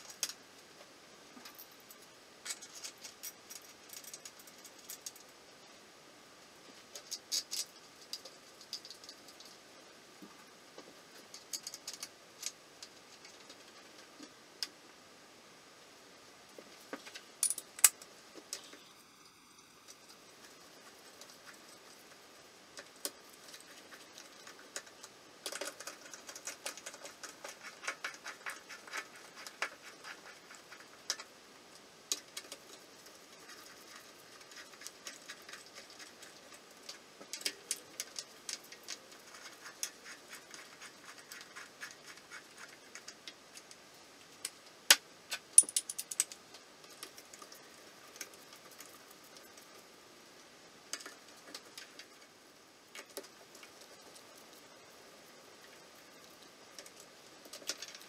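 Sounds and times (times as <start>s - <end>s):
metal clicks: 45.3s - 46.4s.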